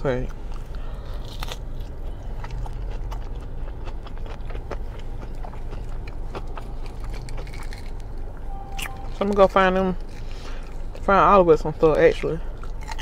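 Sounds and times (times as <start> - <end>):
chewing fried fish: 0.0 - 8.4, 9.2 - 13.0.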